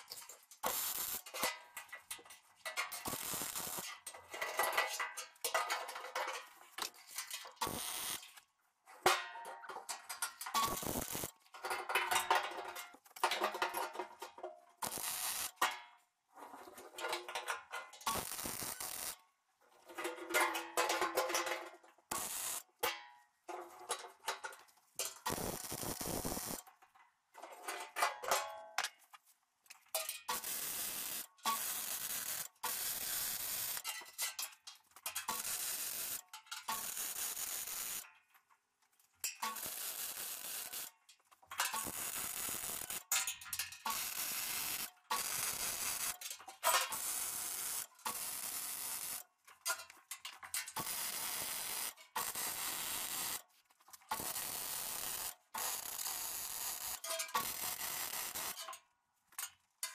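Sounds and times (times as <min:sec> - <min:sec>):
welding buzzing tone: 0:00.6 - 0:01.2, 0:03.1 - 0:03.8, 0:07.6 - 0:08.3, 0:10.6 - 0:11.3, 0:14.8 - 0:15.6, 0:18.1 - 0:19.2, 0:22.1 - 0:22.6, 0:25.3 - 0:26.6, 0:41.7 - 0:43.0, 0:50.8 - 0:53.4, 0:54.2 - 0:58.6
welding arc crackling: 0:00.6 - 0:01.4, 0:03.0 - 0:04.0, 0:07.6 - 0:08.3, 0:10.6 - 0:11.3, 0:14.8 - 0:15.6, 0:18.1 - 0:19.2, 0:22.1 - 0:22.7, 0:25.3 - 0:26.6, 0:30.3 - 0:33.8, 0:35.3 - 0:38.0, 0:39.4 - 0:40.9, 0:41.7 - 0:43.1, 0:43.9 - 0:46.2, 0:50.8 - 0:53.4, 0:54.2 - 0:58.6.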